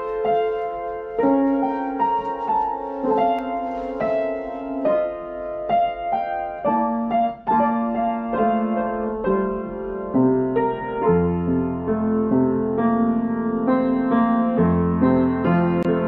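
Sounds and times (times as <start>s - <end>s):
slow gentle piano melody: 0.0s - 16.0s.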